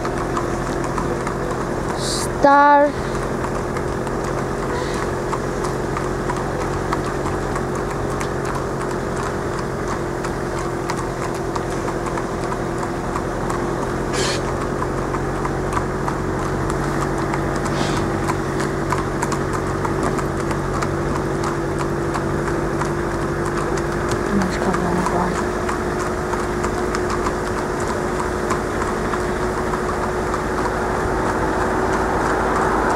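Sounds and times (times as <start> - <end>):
car engines humming: 0.0 - 32.9
horse hooves on wet road: 0.0 - 32.9.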